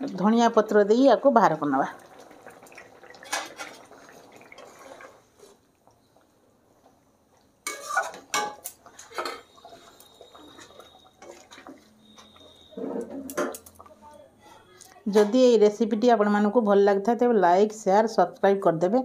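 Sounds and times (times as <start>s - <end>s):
curry simmering: 0.0s - 14.1s
spatula scraping metal pan: 7.7s - 13.5s.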